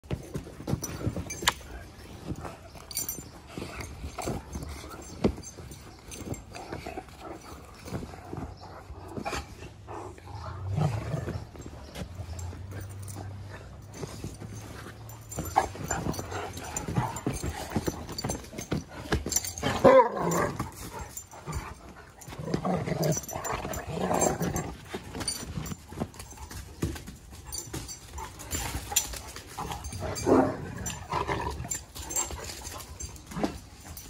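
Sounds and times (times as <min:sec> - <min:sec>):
dogs scuffling and knocking: 0:00.0 - 0:34.0
low drawn-out dog growl: 0:09.7 - 0:11.8.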